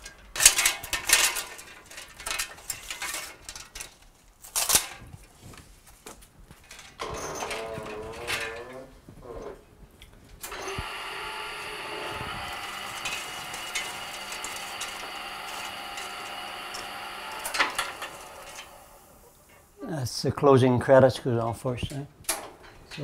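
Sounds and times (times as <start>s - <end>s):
rewinder clicks: 10.4s - 18.8s
motor whining: 10.4s - 19.3s.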